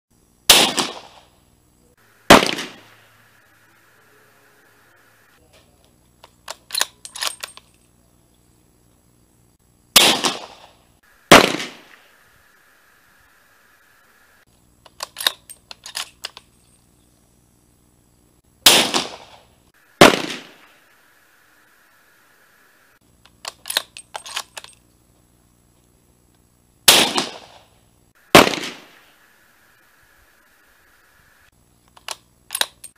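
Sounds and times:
gunshots: 0.5s - 1.3s, 2.2s - 3.2s, 10.0s - 12.2s, 18.6s - 20.8s, 26.9s - 27.7s, 28.3s - 29.2s
rifle bolt clicking: 14.8s - 16.4s, 23.3s - 24.8s, 32.0s - 32.9s.

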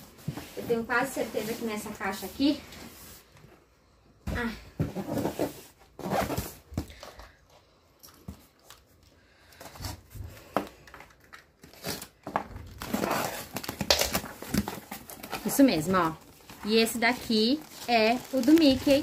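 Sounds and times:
tape and cardboard rustling: 4.4s - 7.4s, 8.2s - 19.0s.

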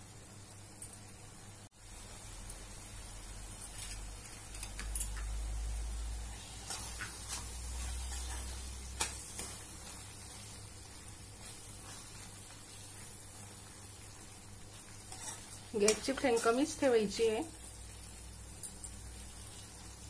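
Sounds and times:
food sizzling in a pan: 0.0s - 20.0s.

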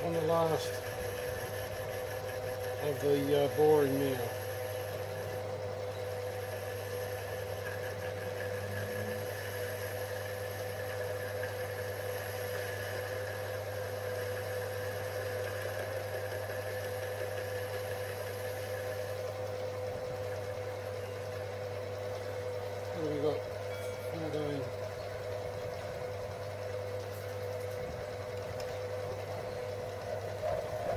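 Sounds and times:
boring bar cutting metal: 0.0s - 19.3s
lathe motor humming and whining: 0.0s - 30.9s.

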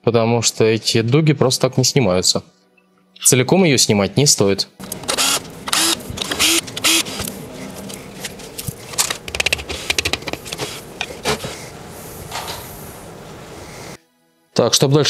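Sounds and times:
cordless drill spinning: 4.8s - 7.9s
parts clicking and rattling: 4.8s - 11.5s.

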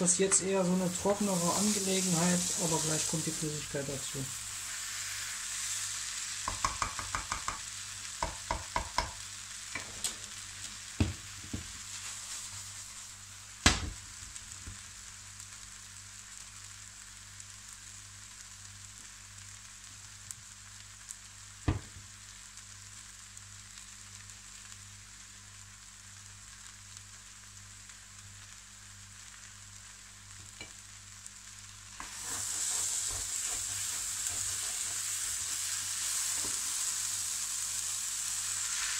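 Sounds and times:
food sizzling in a frying pan: 0.0s - 38.9s
spatula scraping and tapping pan: 6.4s - 12.1s, 32.0s - 36.6s.

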